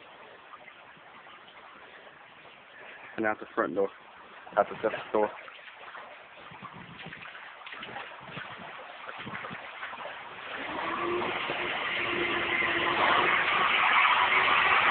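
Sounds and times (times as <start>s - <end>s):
wading through water: 0.0s - 14.9s.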